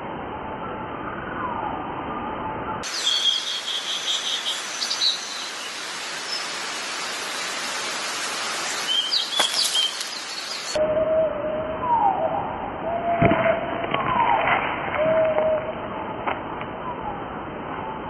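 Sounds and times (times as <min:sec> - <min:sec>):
bird chirps: 0:02.8 - 0:10.8.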